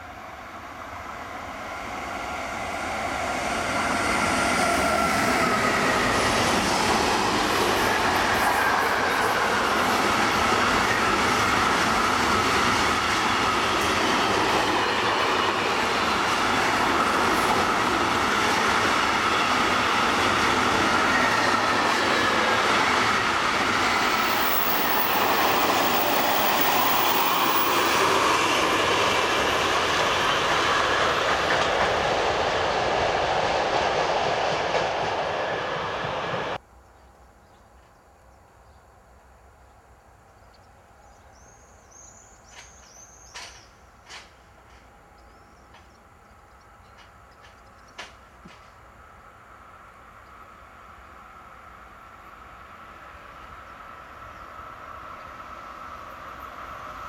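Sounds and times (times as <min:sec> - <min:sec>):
train wheels rumbling and clattering: 0:01.8 - 0:36.6, 0:42.3 - 0:48.9.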